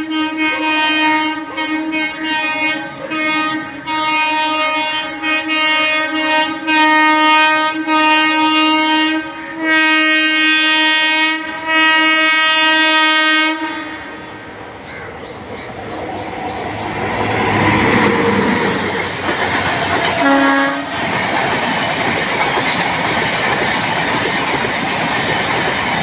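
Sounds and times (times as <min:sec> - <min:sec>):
train air horn blasts: 0:00.0 - 0:14.6, 0:16.5 - 0:21.2.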